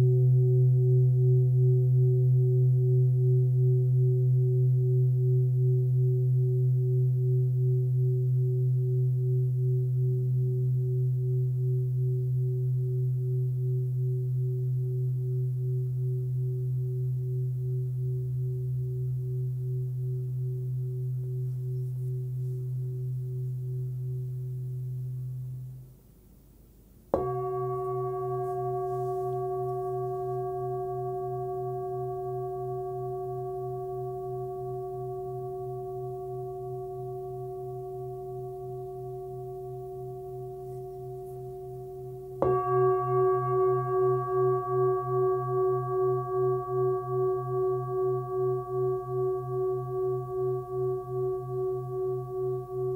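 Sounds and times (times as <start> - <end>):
singing bowl ringing: 0.0 - 25.8, 27.2 - 52.9
singing bowl struck: 27.1 - 52.9.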